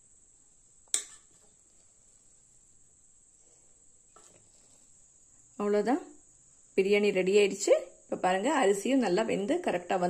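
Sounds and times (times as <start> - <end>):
faint high-pitched whine: 0.0 - 10.0
metal utensil clinking on pot: 1.0 - 1.2.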